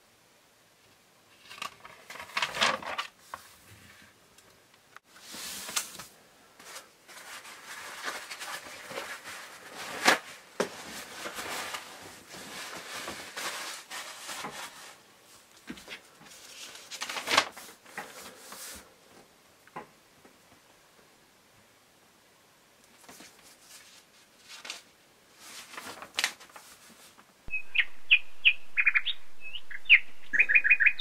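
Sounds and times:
newspaper rustling: 0:01.5 - 0:03.6, 0:05.2 - 0:18.9, 0:23.0 - 0:27.3.

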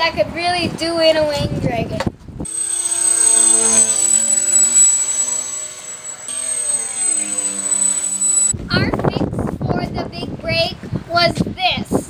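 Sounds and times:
electric motors buzzing drone: 0:02.5 - 0:08.6
steady high whine: 0:02.5 - 0:08.7.

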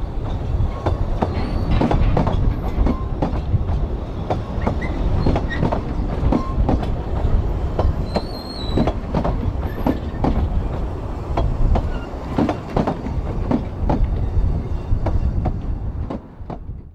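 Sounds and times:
train carriages rumbling: 0:00.0 - 0:16.9
wheels clicking over rail joints: 0:00.2 - 0:14.3
high wheel squeal: 0:01.3 - 0:02.0, 0:08.0 - 0:09.0, 0:11.8 - 0:12.3.

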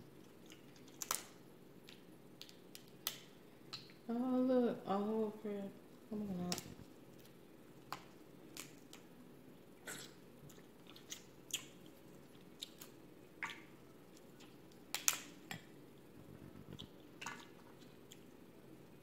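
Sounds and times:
crab shells cracking: 0:00.4 - 0:03.9, 0:14.4 - 0:15.6.

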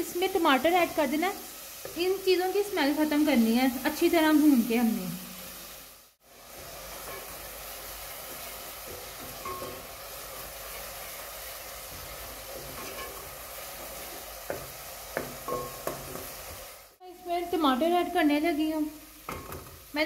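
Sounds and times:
onions sizzling in oil: 0:00.0 - 0:20.0
wooden spoon scraping a pot: 0:11.9 - 0:16.7.

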